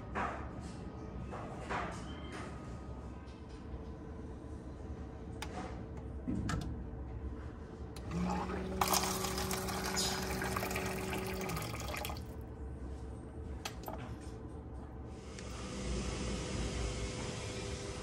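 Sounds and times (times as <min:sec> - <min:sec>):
water running: 0:08.1 - 0:12.4.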